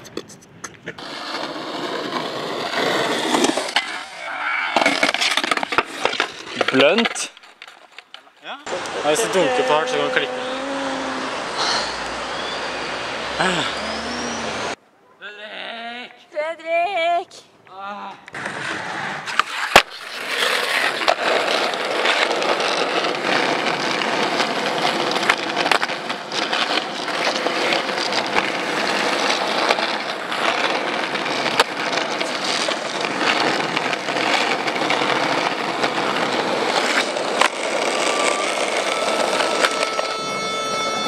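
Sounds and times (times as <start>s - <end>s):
skateboard clacking on ground: 0.0s - 9.6s, 19.2s - 41.0s
skateboard wheels rolling on asphalt: 0.6s - 14.8s, 18.3s - 41.0s.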